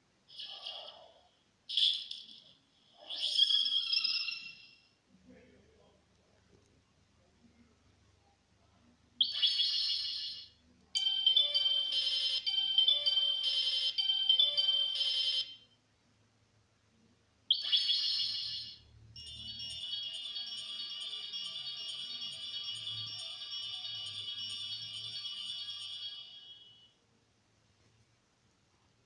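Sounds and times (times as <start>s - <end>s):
high-pitched electronic melody: 11.0s - 15.5s, 19.2s - 26.9s
sparkling electronic chime: 18.0s - 26.9s
shimmering twinkle: 18.1s - 27.0s.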